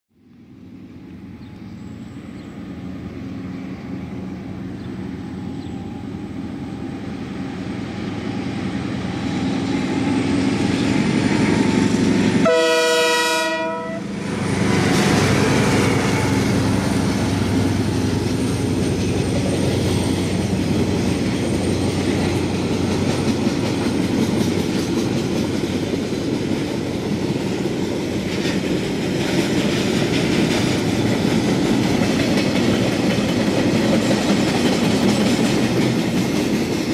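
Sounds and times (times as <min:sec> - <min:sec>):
diesel freight train: 0:00.2 - 0:36.9
train horn blast: 0:11.4 - 0:18.0
wheels clacking over rail joints: 0:14.4 - 0:36.9.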